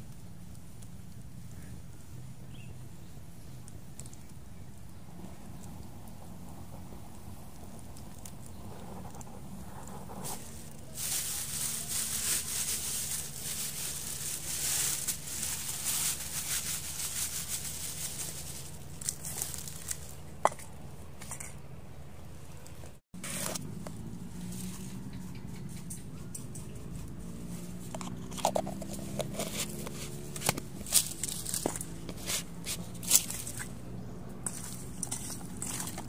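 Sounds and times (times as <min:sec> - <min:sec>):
plastic bag crinkling: 0:10.4 - 0:20.2.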